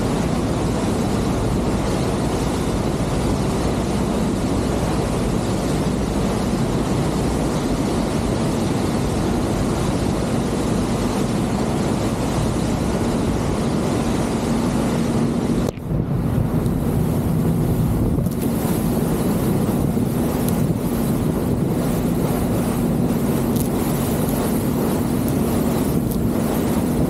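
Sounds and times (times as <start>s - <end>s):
churning wake water: 0.0s - 27.0s
ferry engine drone: 0.0s - 27.0s
wind: 0.0s - 27.0s.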